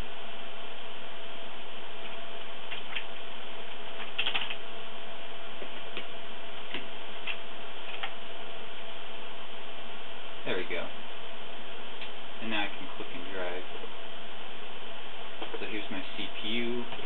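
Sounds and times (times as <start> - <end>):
faint steady tone: 0.0 - 17.0
steady hiss: 0.0 - 17.0
keyboard keystrokes: 4.0 - 4.6.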